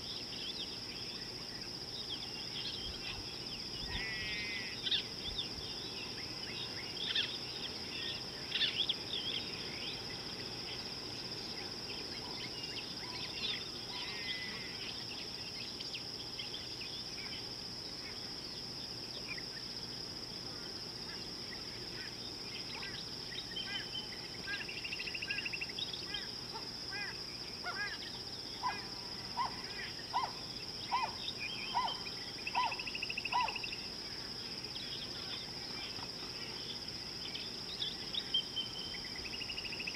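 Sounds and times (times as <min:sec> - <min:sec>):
high-pitched insect drone: 0:12.5 - 0:15.7.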